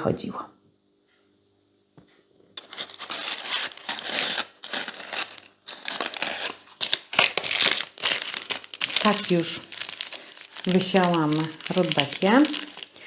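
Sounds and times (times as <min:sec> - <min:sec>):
paper packet crinkling: 0:02.6 - 0:13.0.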